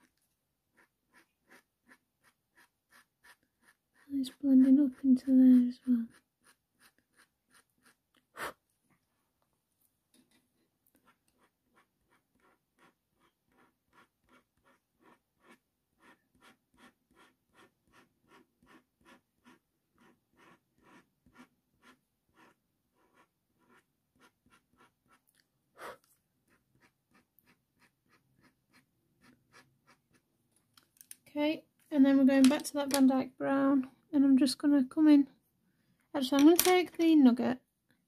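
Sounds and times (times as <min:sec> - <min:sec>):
blade scratching on paper: 0:00.0 - 0:08.0, 0:10.9 - 0:25.2.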